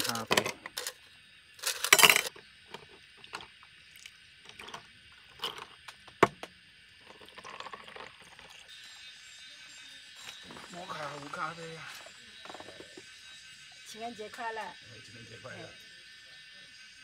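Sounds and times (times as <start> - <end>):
ice clinking against metal: 1.6 - 2.3
ice cubes clattering into metal cup: 1.6 - 2.3, 7.0 - 8.6
coffee trickling over ice: 1.6 - 9.1.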